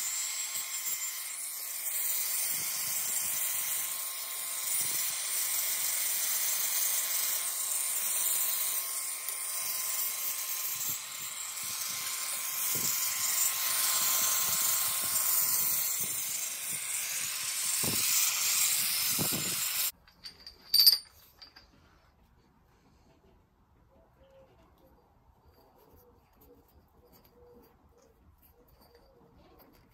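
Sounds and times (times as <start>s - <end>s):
angle grinder grinding steel: 0.0s - 20.0s
ringing metal clink: 20.0s - 21.7s.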